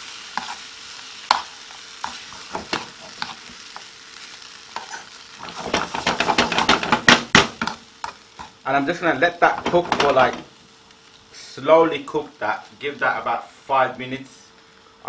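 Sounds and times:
spoon stirring and scraping pan: 0:00.0 - 0:08.6, 0:09.4 - 0:10.5
food sizzling in frying pan: 0:00.0 - 0:15.0
spoon tapping on pan: 0:05.7 - 0:08.5.

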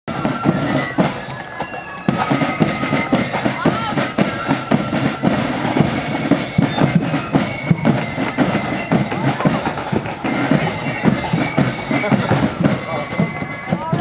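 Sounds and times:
snare drums beating: 0:00.1 - 0:14.0.

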